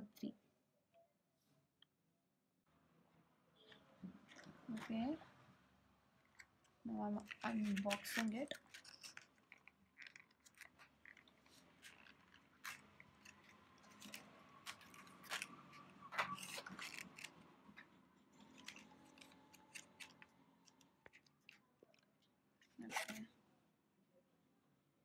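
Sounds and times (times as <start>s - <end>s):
packaging crinkling: 6.3s - 22.0s.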